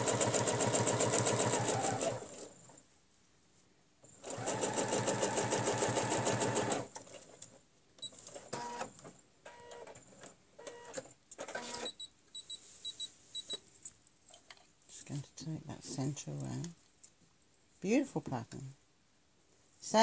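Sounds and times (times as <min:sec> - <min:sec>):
sewing machine stitching: 0:00.0 - 0:02.5, 0:04.2 - 0:07.2.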